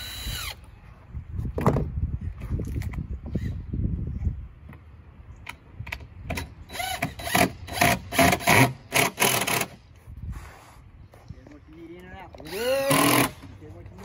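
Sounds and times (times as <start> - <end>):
cordless drill driving screw: 0.0 - 0.7, 12.4 - 13.5.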